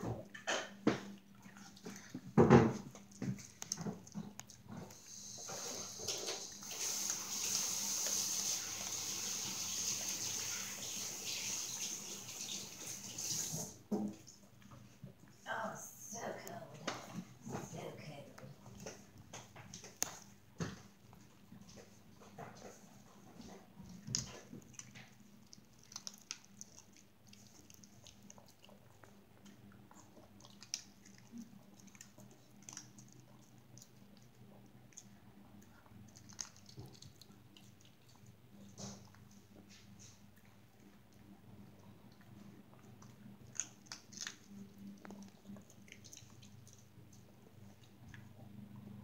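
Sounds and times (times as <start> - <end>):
dog chewing treats: 18.5 - 48.5.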